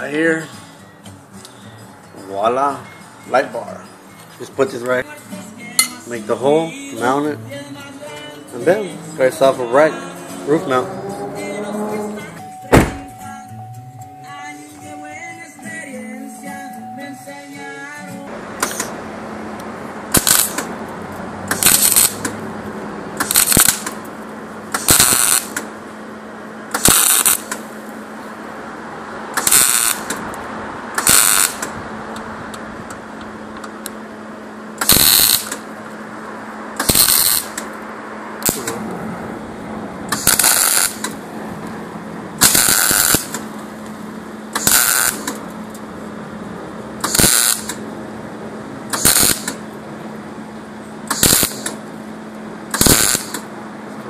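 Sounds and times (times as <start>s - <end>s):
welding arc crackling: 20.1s - 20.7s, 21.5s - 22.3s, 23.2s - 24.1s, 24.7s - 25.6s, 26.7s - 27.6s, 29.4s - 30.2s, 31.0s - 31.7s, 34.8s - 35.6s, 36.8s - 37.6s, 40.1s - 41.1s, 42.4s - 43.4s, 44.6s - 45.3s, 47.0s - 47.8s, 48.9s - 49.6s, 51.1s - 51.8s, 52.7s - 53.4s.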